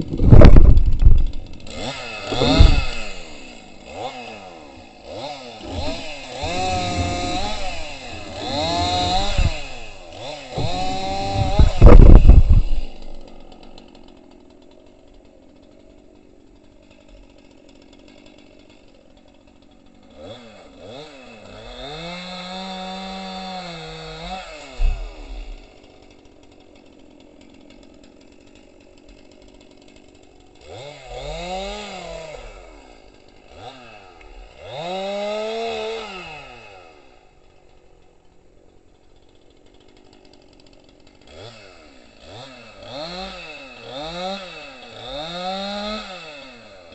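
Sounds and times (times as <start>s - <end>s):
chainsaw revving: 0.0s - 46.9s.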